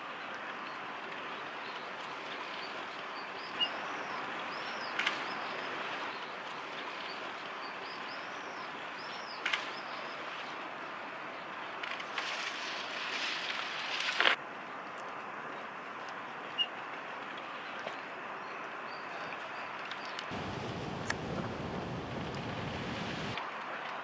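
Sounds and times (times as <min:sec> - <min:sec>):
steady hiss: 0:20.3 - 0:23.4.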